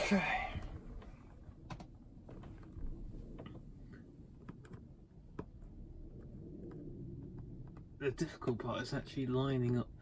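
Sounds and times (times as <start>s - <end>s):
small clicks and taps: 4.3s - 8.7s.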